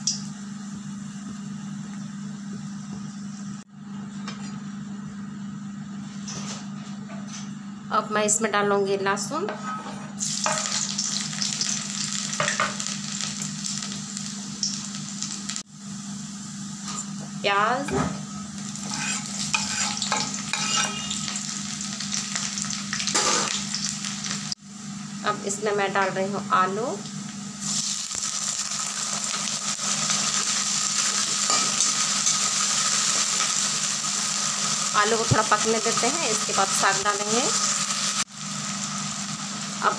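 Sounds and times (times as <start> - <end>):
garlic sizzling in hot oil: 10.2 - 25.6, 26.2 - 39.9
metal spatula scraping pan: 18.8 - 21.2.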